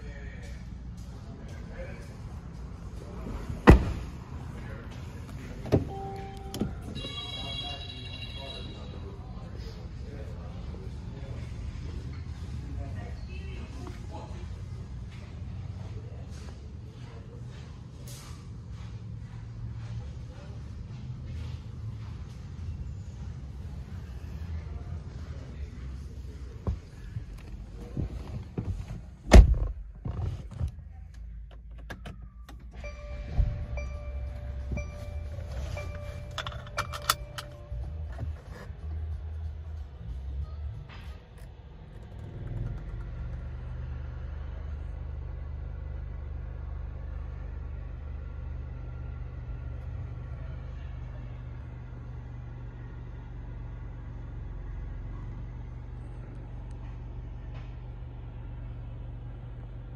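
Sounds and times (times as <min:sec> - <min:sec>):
car engine idling: 0:00.0 - 0:59.9
loud thump: 0:03.6 - 0:04.1
low steady hum: 0:05.1 - 0:08.8, 0:30.5 - 0:41.1
car warning chime: 0:05.7 - 0:08.8, 0:32.6 - 0:38.4.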